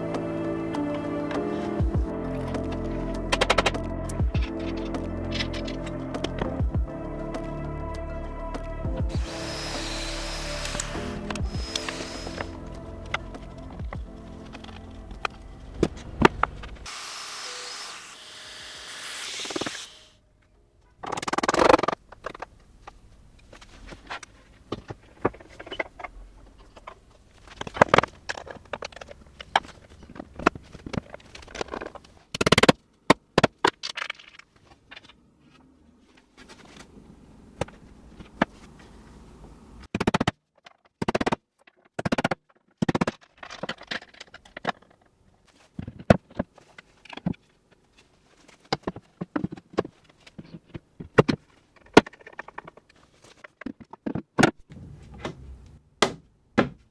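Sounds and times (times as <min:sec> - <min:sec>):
objects knocking and scraping: 0:21.0 - 0:35.6, 0:39.9 - 0:55.4.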